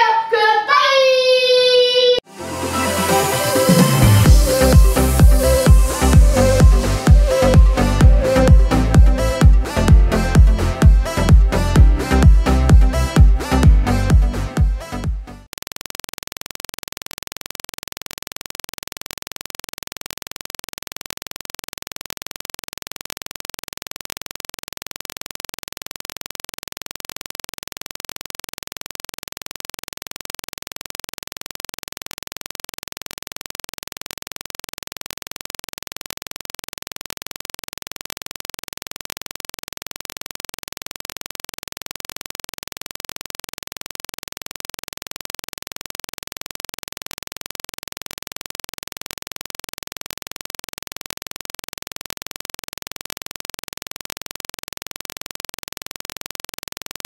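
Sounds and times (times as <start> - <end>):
faint repeating music: 2.2 - 15.5.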